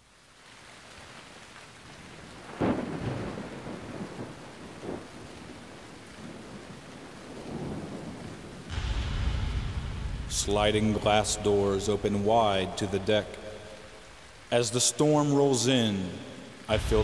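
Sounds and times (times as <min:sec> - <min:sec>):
steady rain: 0:00.0 - 0:17.0
rolling thunder rumbles: 0:02.4 - 0:14.5, 0:16.7 - 0:17.0
thunderclap: 0:02.4 - 0:14.5, 0:16.7 - 0:17.0.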